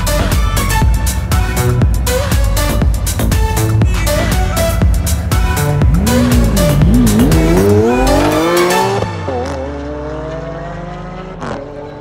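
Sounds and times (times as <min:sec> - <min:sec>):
race car engine accelerating: 0:04.6 - 0:12.0.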